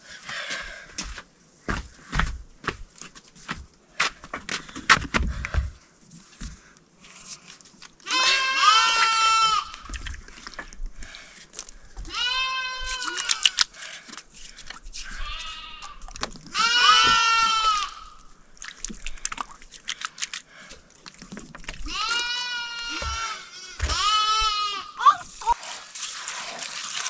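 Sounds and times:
sheep bleating: 0:08.1 - 0:09.7, 0:12.1 - 0:13.5, 0:16.6 - 0:18.1, 0:21.9 - 0:25.0.

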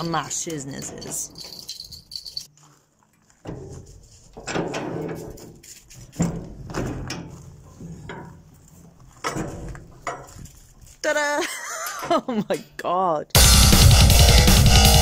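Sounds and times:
metal scraping and creaking: 0:00.0 - 0:11.2.

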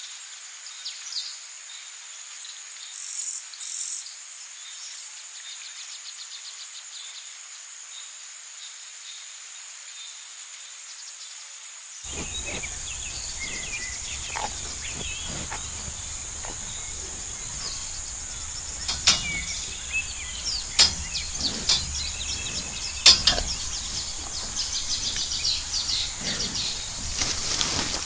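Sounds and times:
bird chirps: 0:12.1 - 0:28.0
cattle tearing grass: 0:12.1 - 0:28.0
high insect drone: 0:12.1 - 0:28.0.

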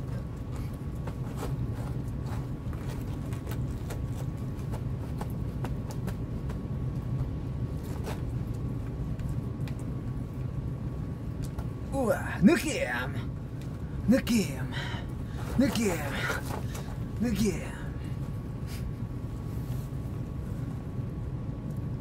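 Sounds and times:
faint clicks and crackles: 0:00.0 - 0:10.7
faint steady hum: 0:00.0 - 0:22.0
low outdoor rumble: 0:00.0 - 0:22.0.

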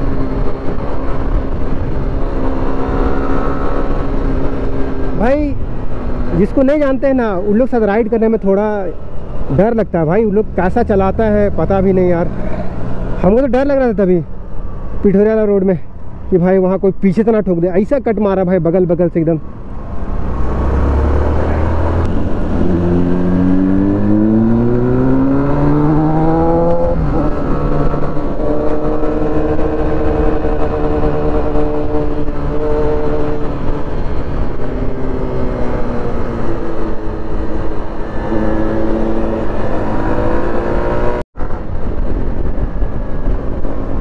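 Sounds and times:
motorcycle engine accelerating: 0:00.0 - 0:06.7, 0:19.4 - 0:44.0.

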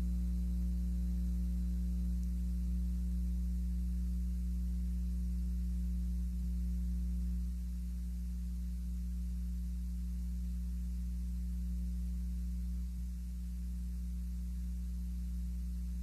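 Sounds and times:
electrical mains hum: 0:00.0 - 0:16.0
faint static hiss: 0:00.0 - 0:16.0.

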